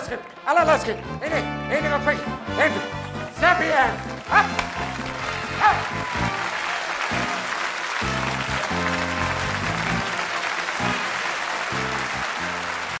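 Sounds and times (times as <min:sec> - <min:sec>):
audience applauding: 0:03.0 - 0:13.0.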